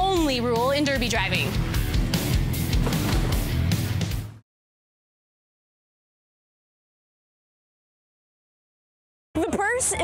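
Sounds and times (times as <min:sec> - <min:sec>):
loud music with strong beat: 0:01.2 - 0:04.3.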